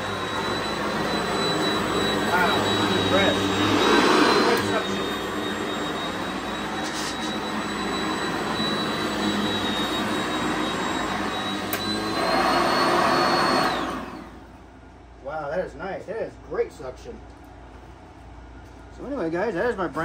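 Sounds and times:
vacuum cleaner motor whine: 0:00.0 - 0:14.6.

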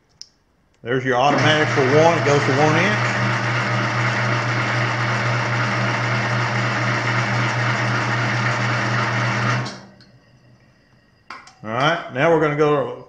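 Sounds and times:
motor humming: 0:01.3 - 0:11.0.

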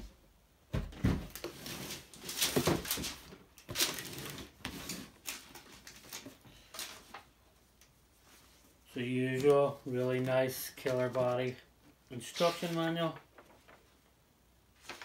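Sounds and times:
paper rustling: 0:08.3 - 0:11.6, 0:12.2 - 0:14.0, 0:14.8 - 0:15.0.

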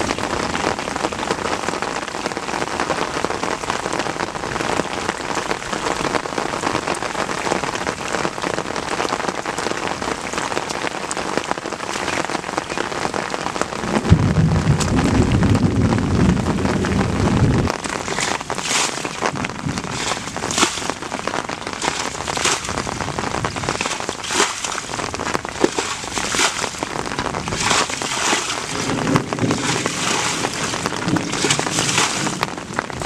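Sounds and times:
low rumble: 0:13.8 - 0:18.2.

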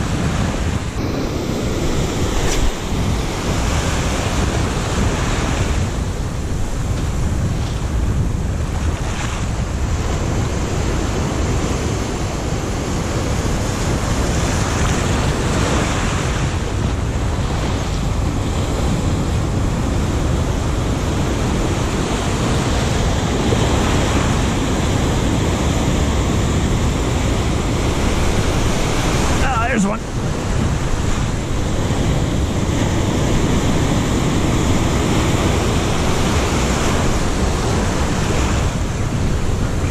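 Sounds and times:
surf breaking over rocks: 0:00.0 - 0:08.0, 0:21.3 - 0:39.9
wind buffeting microphone: 0:00.0 - 0:39.9.

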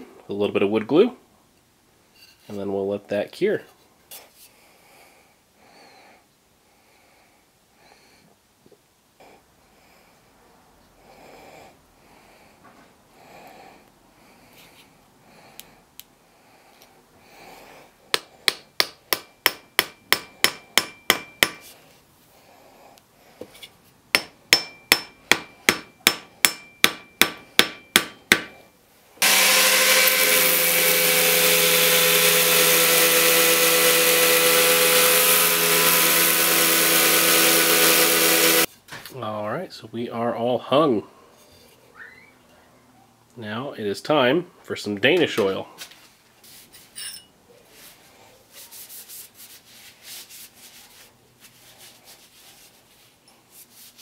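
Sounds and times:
hammer ringing strikes: 0:18.5 - 0:21.6, 0:24.2 - 0:28.5
belt grinder sanding: 0:29.2 - 0:38.7.

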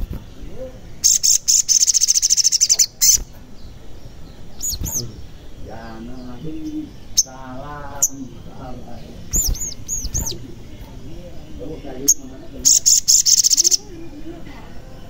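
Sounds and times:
bird high rapid trill: 0:00.0 - 0:14.9
bird short high chirps: 0:01.0 - 0:03.4, 0:12.1 - 0:13.8.

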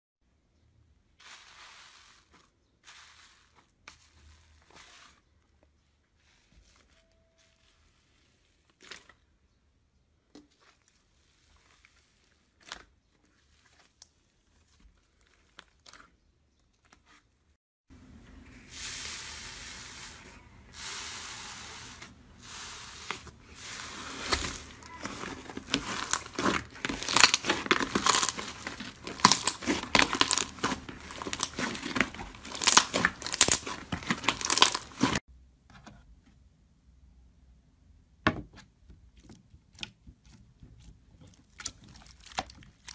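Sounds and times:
slime squishing and popping: 0:24.2 - 0:35.2.

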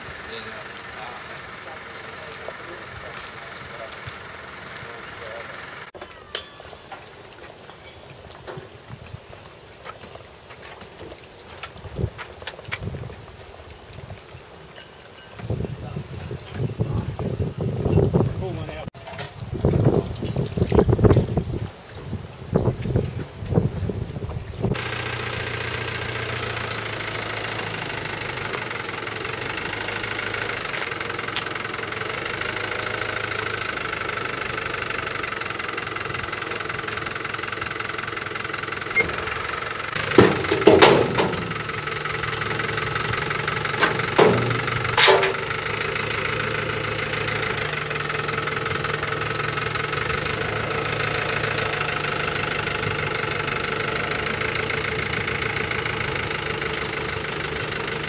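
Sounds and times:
truck engine idling: 0:00.0 - 0:08.8, 0:23.3 - 0:58.0.

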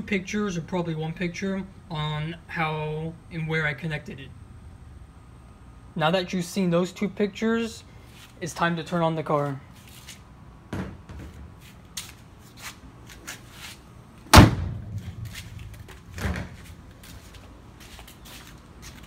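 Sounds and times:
car hood slamming shut: 0:14.3 - 0:15.3.

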